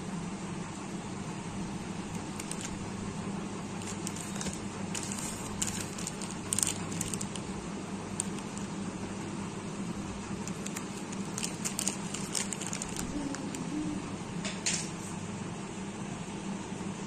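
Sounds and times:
steady low hum: 0.0 - 17.0
plastic wrapper crinkling: 2.1 - 2.8, 3.7 - 8.8, 10.4 - 13.6.

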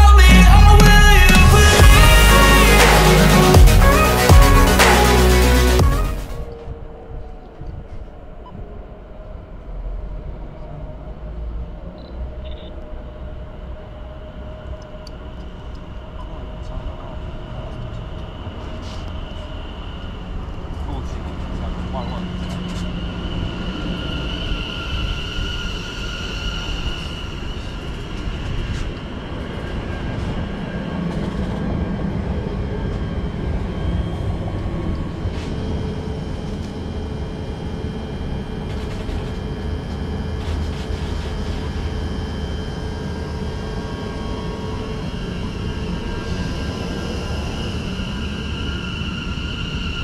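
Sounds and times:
high electric whine: 0.0 - 6.8, 12.4 - 50.0
train wheels rumbling on rail: 10.0 - 50.0.

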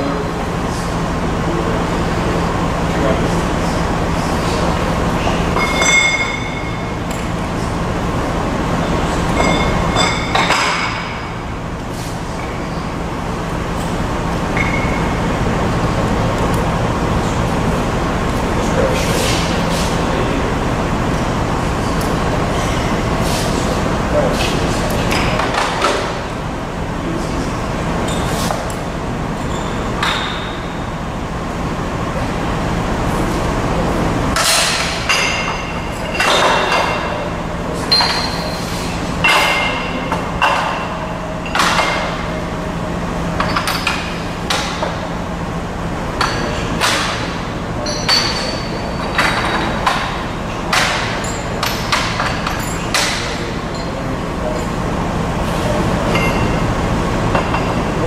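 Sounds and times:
folding machine hum: 0.0 - 58.0
sheet metal clanking and ringing: 5.5 - 7.1, 9.0 - 11.5, 14.5 - 15.4, 34.3 - 38.6, 39.2 - 42.4, 46.2 - 54.8, 56.0 - 56.7.

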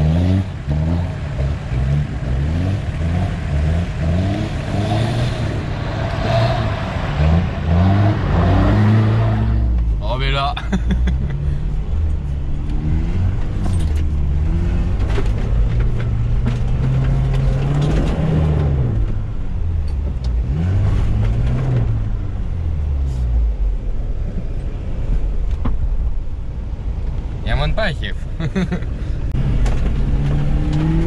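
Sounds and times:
off-road vehicle engine revving: 0.0 - 9.9, 10.7 - 19.2, 20.1 - 23.6, 28.5 - 31.0.

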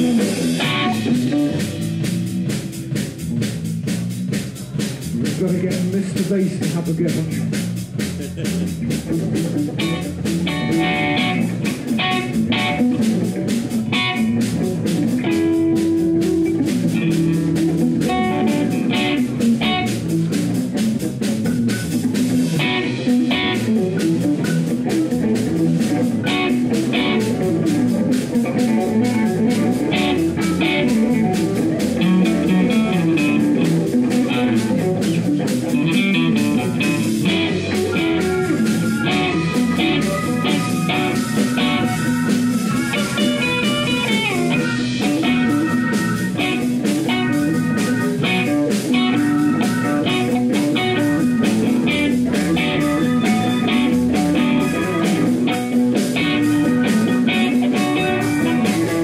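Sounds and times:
drum kit beat: 0.0 - 59.0
electric bass: 0.0 - 59.0
electric guitar: 0.0 - 59.0.

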